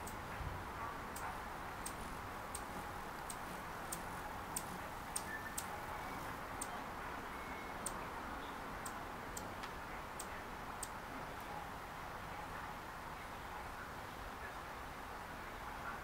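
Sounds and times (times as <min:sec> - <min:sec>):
steady hiss: 0:00.0 - 0:16.0
sharp high-pitched ticks: 0:01.1 - 0:05.7.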